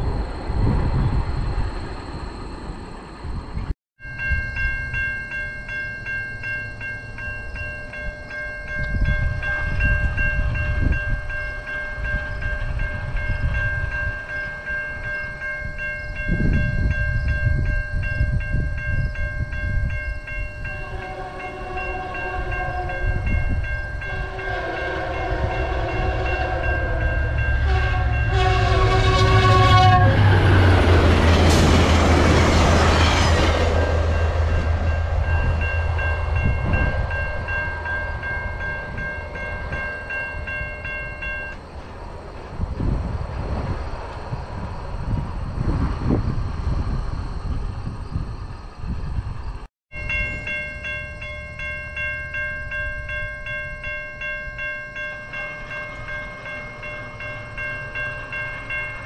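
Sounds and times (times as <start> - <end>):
level-crossing warning bell: 4.0 - 42.6, 49.9 - 59.0
train wheels on rails: 5.8 - 59.0
train horn blasts: 20.7 - 31.6.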